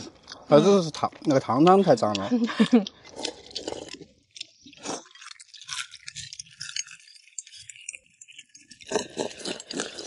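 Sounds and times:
tableware clinking and rattling: 5.4s - 10.0s.

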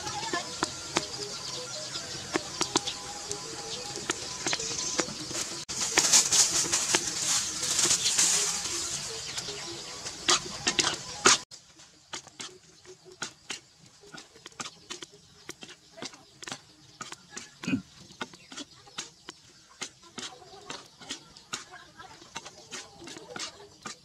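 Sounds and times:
food sizzling: 0.0s - 24.0s
metal spatula scraping a wok: 18.2s - 24.0s.

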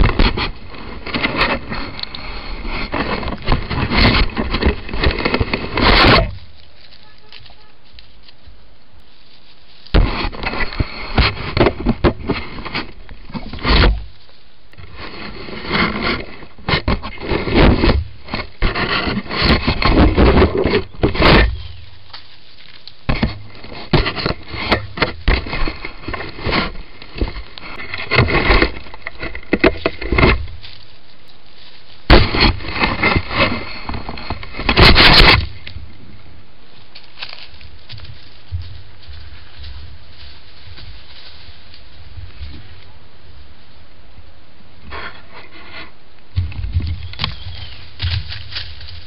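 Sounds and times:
hands scraping plastic housing: 0.0s - 6.4s, 10.0s - 14.1s, 14.8s - 21.8s, 23.0s - 30.8s, 32.1s - 35.8s.

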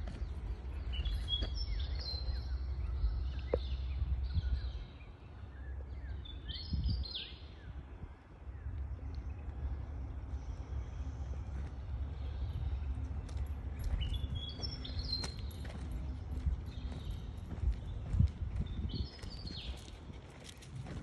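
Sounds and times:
low rumble: 0.0s - 21.0s
birds chirping and whistling: 0.2s - 7.8s, 11.5s - 15.9s.

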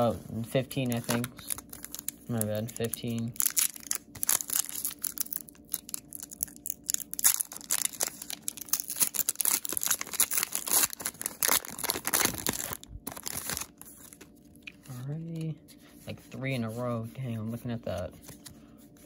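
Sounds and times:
foil wrapper crinkling and tearing: 0.8s - 14.6s.

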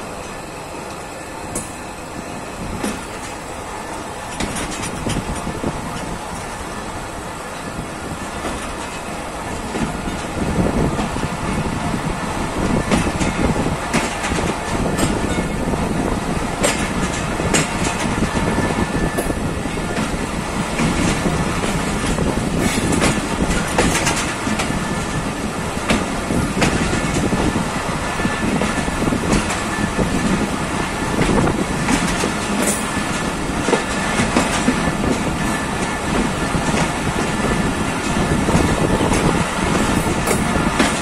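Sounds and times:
train wheels rumbling on rails: 0.0s - 41.0s
wheels clicking over rail joints: 2.6s - 6.6s, 16.6s - 41.0s.

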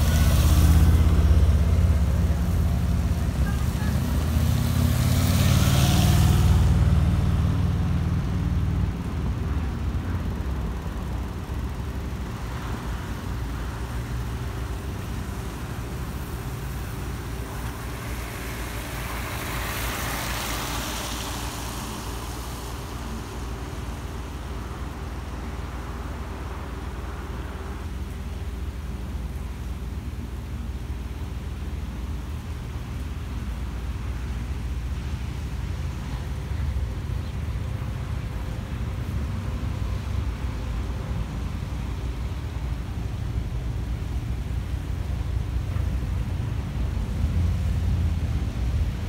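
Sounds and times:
motorcycle passing: 0.0s - 8.1s
low traffic rumble: 0.0s - 49.0s
tyres hissing on wet road: 0.0s - 49.0s.

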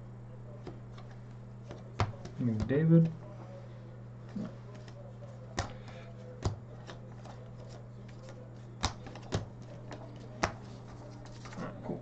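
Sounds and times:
low steady hum: 0.0s - 12.0s
cards flipped and set down: 5.6s - 11.7s.

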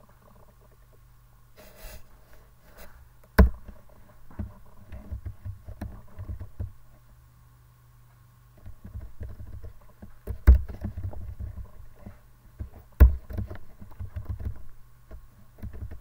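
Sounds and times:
dull thumps: 3.4s - 6.8s, 8.6s - 16.0s.

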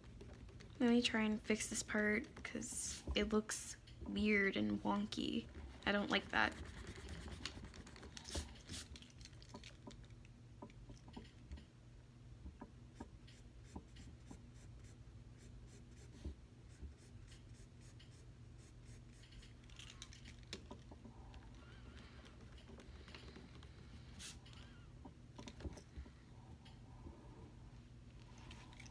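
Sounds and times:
low room hum: 0.0s - 28.9s
pencil scratching on paper: 5.9s - 8.5s.

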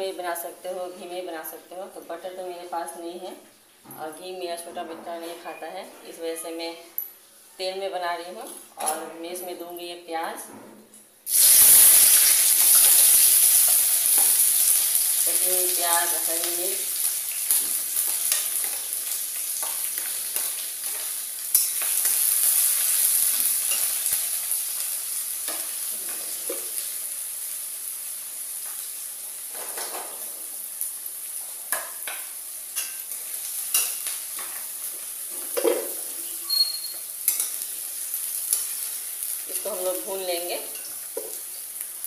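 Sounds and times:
vegetables sizzling in hot oil: 11.2s - 42.0s.

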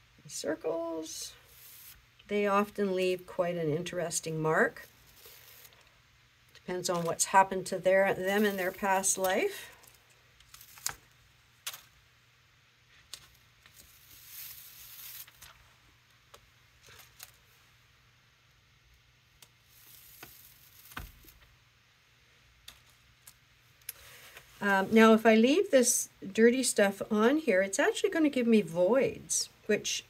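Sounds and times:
stencils peeling and rustling: 8.0s - 11.9s, 13.0s - 15.7s, 19.4s - 21.5s.

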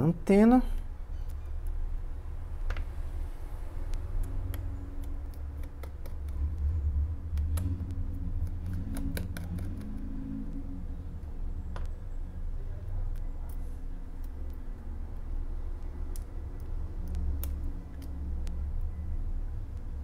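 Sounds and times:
low steady hum: 0.0s - 20.0s
small clicks and taps: 3.9s - 6.7s.

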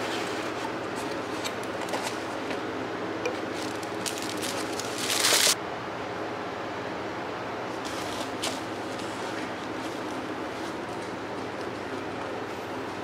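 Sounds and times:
tissue paper crinkling: 3.4s - 5.6s.

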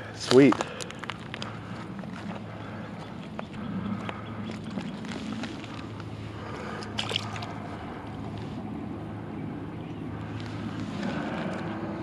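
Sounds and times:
low motor hum: 0.0s - 12.0s
fish splashing into water: 6.6s - 7.6s.

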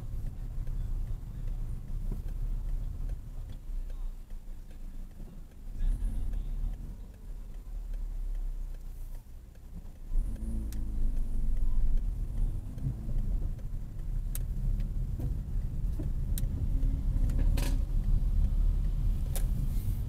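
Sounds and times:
sharp clicks: 0.0s - 19.7s
car engine and road noise: 0.0s - 20.0s.

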